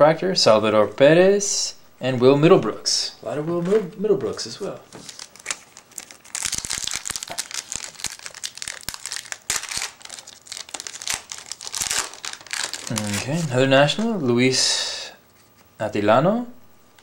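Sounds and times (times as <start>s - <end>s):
foil wrapper tearing and crinkling: 4.9s - 13.5s.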